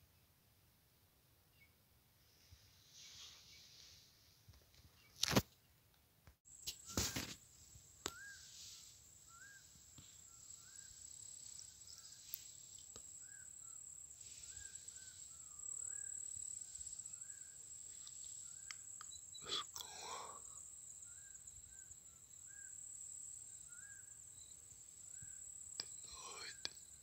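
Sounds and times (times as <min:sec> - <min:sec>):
insects trilling: 0:06.5 - 0:27.0.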